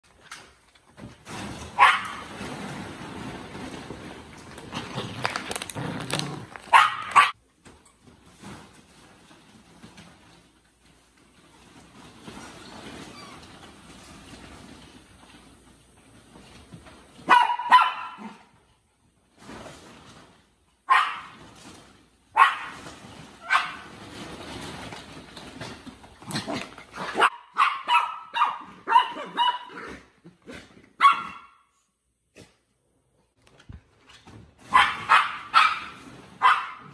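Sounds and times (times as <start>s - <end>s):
small dogs barking: 6.6s - 7.4s, 17.2s - 18.5s, 20.9s - 21.4s, 22.3s - 22.8s, 27.0s - 29.9s, 31.0s - 31.6s, 34.7s - 36.9s.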